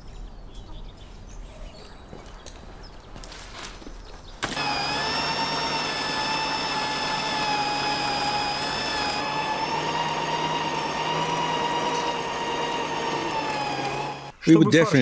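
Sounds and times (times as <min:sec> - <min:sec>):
electric meat grinder whining: 0:04.5 - 0:14.4.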